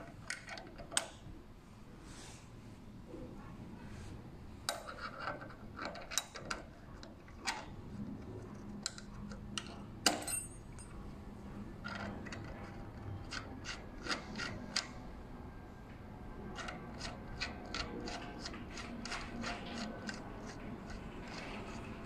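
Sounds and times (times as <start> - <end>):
small metallic clicks and clinks: 8.9 - 11.0.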